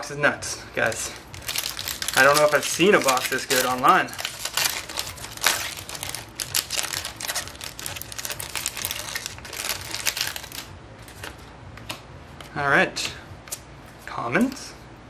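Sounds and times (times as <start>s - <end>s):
foil wrapper crinkling: 0.8s - 11.2s.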